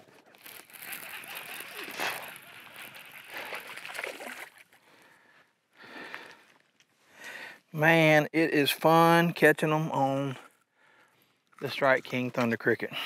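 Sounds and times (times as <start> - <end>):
fish splashing at water surface: 0.4 - 4.8.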